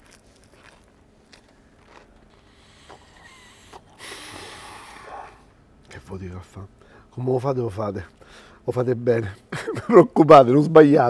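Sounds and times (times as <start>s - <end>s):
man chewing bread: 0.0s - 5.4s
mouth clicks: 2.3s - 5.5s.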